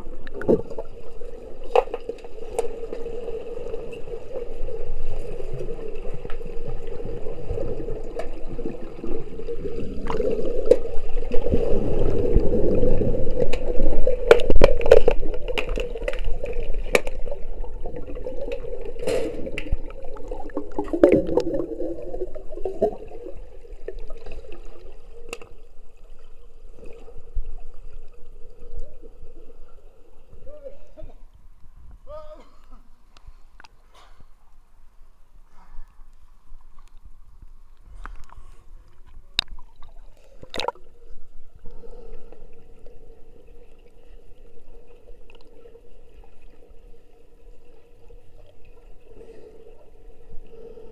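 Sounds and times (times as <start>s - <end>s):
muffled churning water: 0.0s - 50.9s
steady hum: 0.0s - 50.9s.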